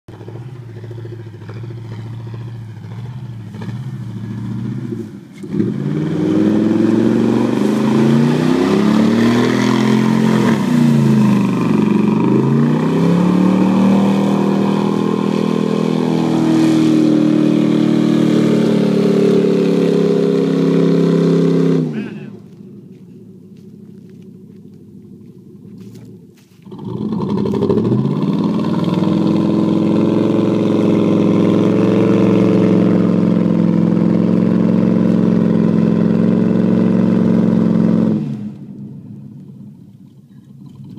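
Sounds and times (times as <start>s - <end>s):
truck engine revving: 0.1s - 38.8s
mud spraying off tyres: 0.8s - 22.3s.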